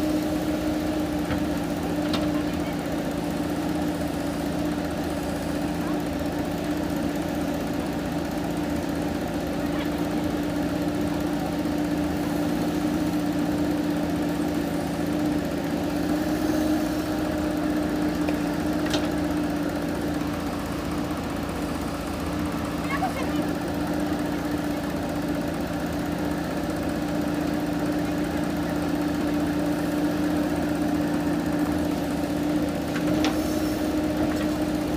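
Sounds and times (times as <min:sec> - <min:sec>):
diesel engine running: 0:00.0 - 0:34.9
backhoe digging soil: 0:27.9 - 0:34.9.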